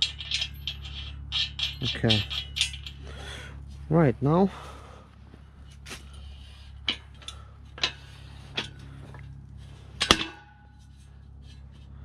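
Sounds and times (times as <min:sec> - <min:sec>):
metal clank ringing: 0:00.0 - 0:03.4, 0:10.0 - 0:10.9
metal clicks and creaks: 0:00.0 - 0:03.9, 0:05.6 - 0:12.0.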